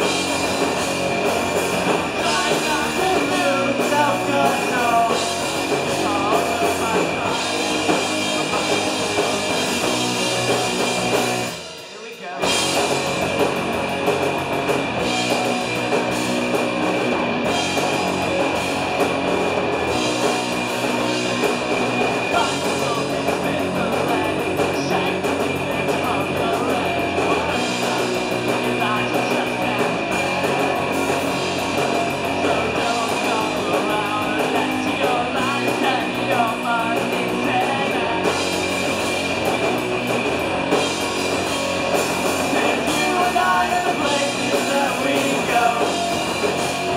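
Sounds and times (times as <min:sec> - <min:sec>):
drum kit: 0:00.0 - 0:46.9
electric guitars: 0:00.0 - 0:46.9
person singing: 0:02.2 - 0:09.7, 0:22.3 - 0:30.9, 0:32.3 - 0:38.4, 0:42.4 - 0:46.6.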